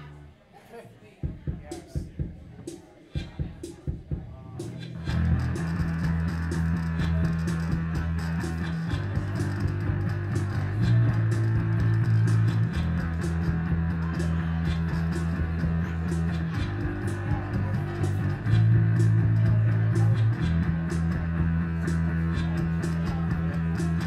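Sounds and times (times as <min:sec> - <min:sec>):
electric bass low notes: 0:04.6 - 0:24.0.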